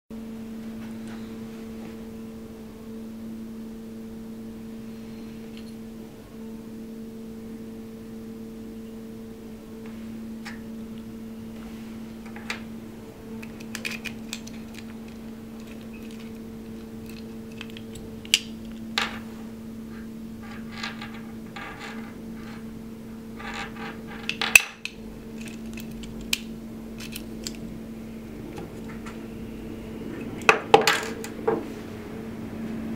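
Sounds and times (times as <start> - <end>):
low hum: 0.2 - 32.9.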